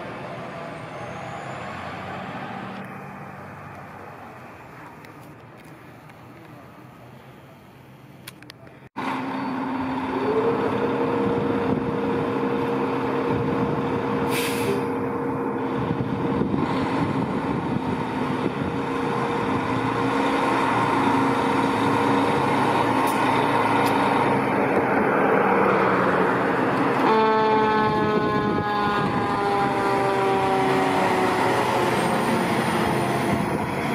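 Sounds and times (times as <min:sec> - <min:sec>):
diesel engine droning: 0:00.0 - 0:33.9
faint street background: 0:00.0 - 0:33.9
air brakes hissing: 0:14.2 - 0:15.0.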